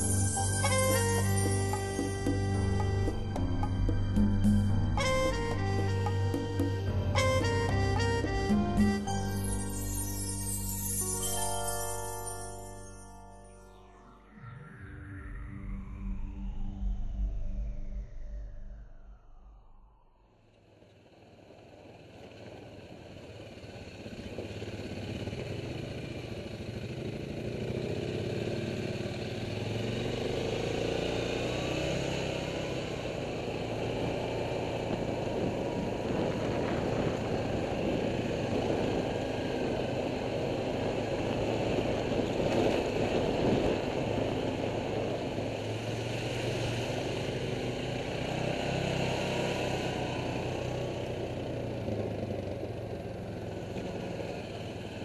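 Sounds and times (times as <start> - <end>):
quad bike engine running: 20.8 - 55.0.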